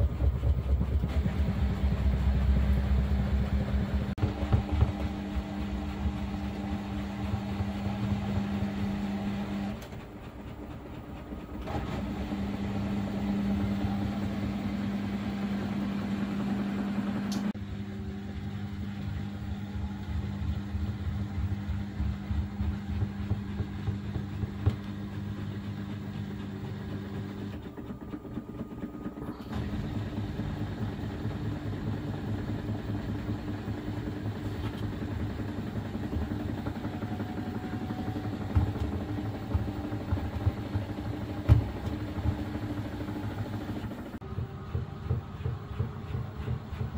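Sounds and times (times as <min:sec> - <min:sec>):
pulsing low rumble: 0:00.0 - 0:09.0
washing machine knocks: 0:00.0 - 0:09.0, 0:21.1 - 0:25.1, 0:35.0 - 0:43.5, 0:44.2 - 0:46.9
washing machine motor hum: 0:00.0 - 0:46.9.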